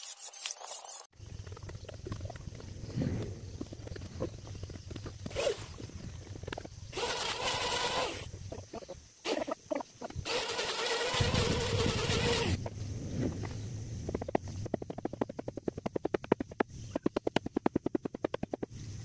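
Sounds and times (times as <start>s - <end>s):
power tool whining: 6.9s - 8.3s, 10.2s - 12.6s.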